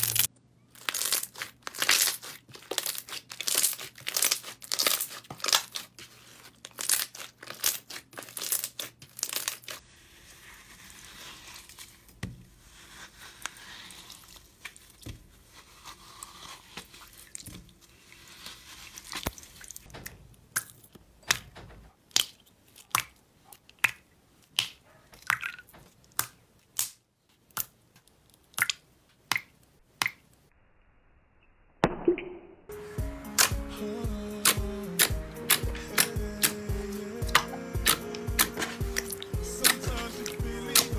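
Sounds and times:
slime squishing: 0:00.0 - 0:19.9, 0:34.4 - 0:36.6, 0:37.2 - 0:40.9.

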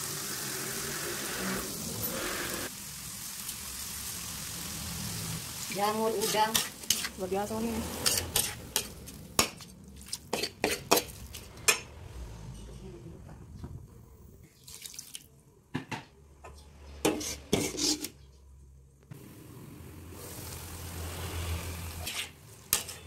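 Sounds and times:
metal spatula scraping a pan: 0:05.7 - 0:09.6, 0:10.3 - 0:12.8, 0:17.0 - 0:18.3, 0:20.9 - 0:23.0.

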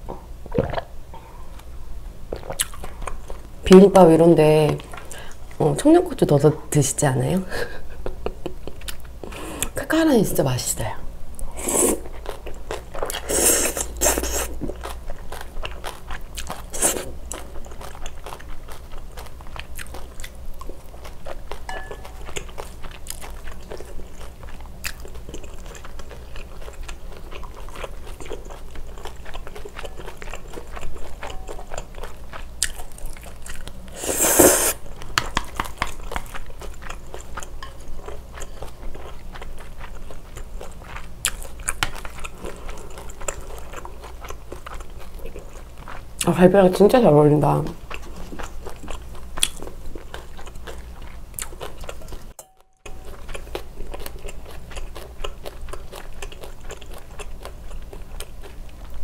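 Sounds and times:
close chewing with wet clicks: 0:02.3 - 0:03.5, 0:08.6 - 0:09.1, 0:14.6 - 0:33.9, 0:35.0 - 0:46.4, 0:47.8 - 0:59.0
noodle slurps: 0:33.9 - 0:34.8.

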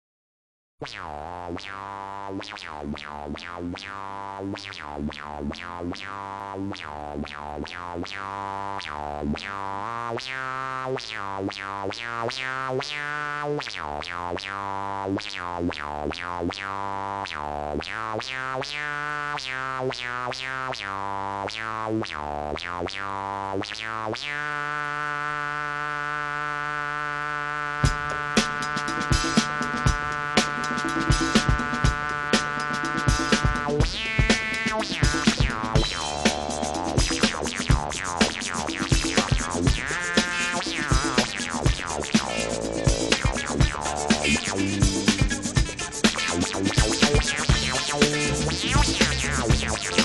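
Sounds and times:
music with sharp pitched notes: 0:27.8 - 0:50.0
steady bass line: 0:27.8 - 0:50.0.

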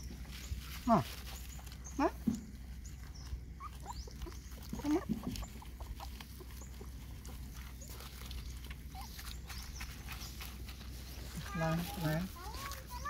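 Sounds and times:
puppies whimpering: 0:00.8 - 0:10.4.

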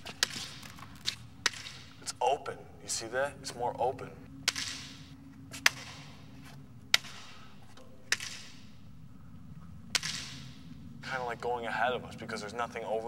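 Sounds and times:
sharp clicks with echo: 0:04.4 - 0:06.1, 0:08.1 - 0:08.6, 0:09.9 - 0:10.6.

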